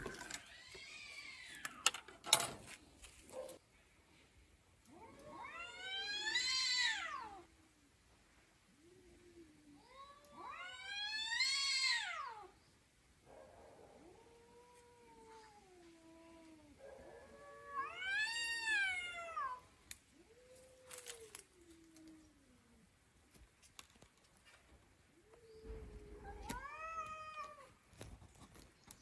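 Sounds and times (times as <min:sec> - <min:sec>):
cat yowling: 0:04.9 - 0:07.4, 0:16.4 - 0:19.6, 0:25.7 - 0:27.7
cat moaning low: 0:25.6 - 0:27.7.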